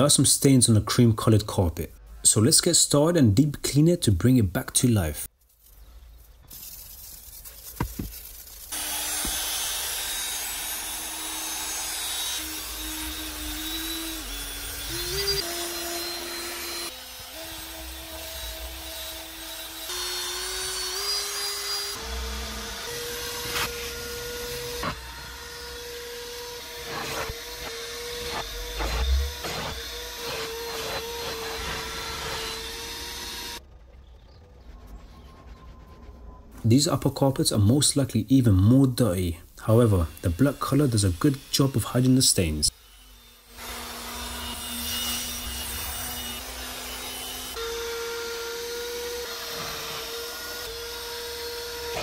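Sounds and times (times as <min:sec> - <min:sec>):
cordless drill motor whine: 0:08.7 - 0:19.3.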